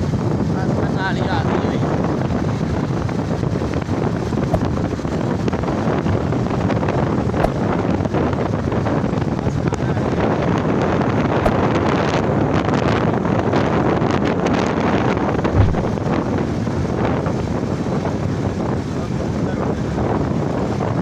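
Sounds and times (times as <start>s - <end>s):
wind buffeting microphone: 0.0s - 21.0s
vehicle running noise: 15.4s - 16.5s.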